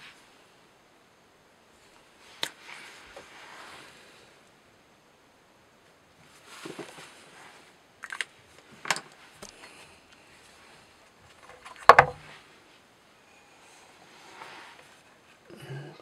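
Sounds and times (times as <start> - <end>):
hard clicks and knocks: 11.5 - 12.2
clatter of knocks: 11.5 - 12.3.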